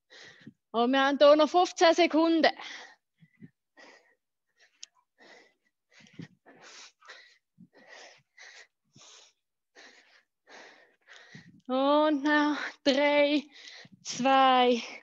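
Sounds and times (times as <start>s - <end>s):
heavy rapid breathing: 2.6s - 11.7s.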